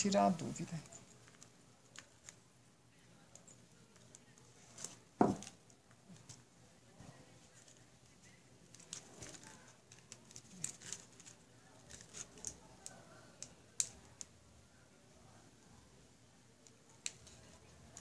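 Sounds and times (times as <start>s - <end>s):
plastic clicking and rustling: 8.7s - 14.3s.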